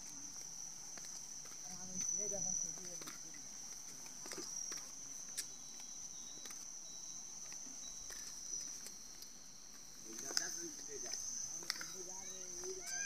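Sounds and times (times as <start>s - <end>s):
footsteps on concrete steps: 0.0s - 6.8s
insects trilling: 0.0s - 13.0s.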